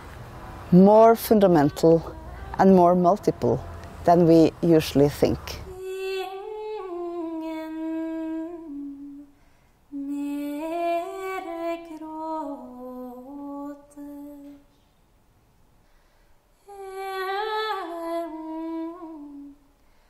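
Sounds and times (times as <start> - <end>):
woman humming a slow tune: 5.6 - 9.3, 9.9 - 14.6, 16.7 - 19.6.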